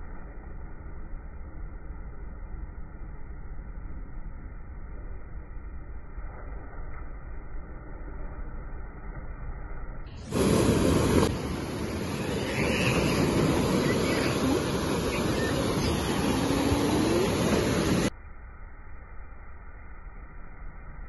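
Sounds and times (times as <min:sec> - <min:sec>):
waves breaking on sandy beach: 0:10.2 - 0:18.1.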